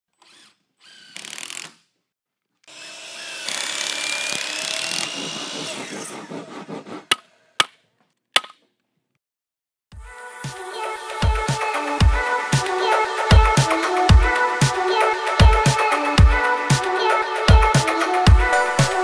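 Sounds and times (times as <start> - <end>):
power tool buzz: 2.7 - 6.4
power saw cutting wood: 2.7 - 7.5.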